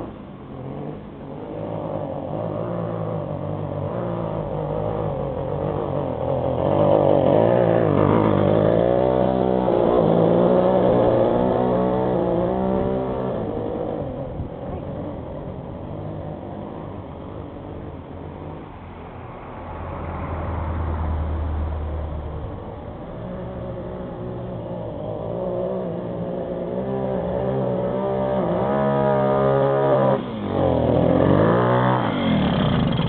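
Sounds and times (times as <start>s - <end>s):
moped engine running poorly: 31.8s - 33.0s.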